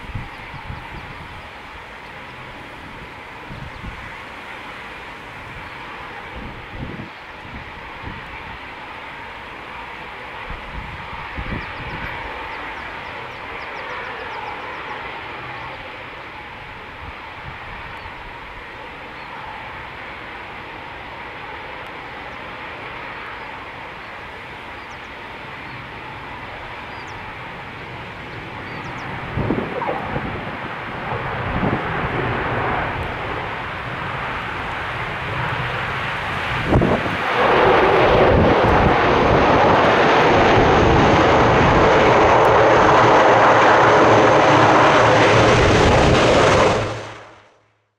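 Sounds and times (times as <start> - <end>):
turboprop aircraft flying past: 11.1 - 47.5.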